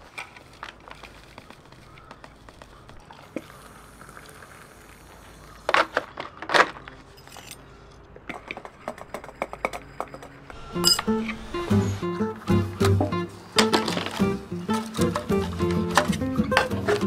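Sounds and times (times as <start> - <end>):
small hard objects clicking: 0.0 - 4.6.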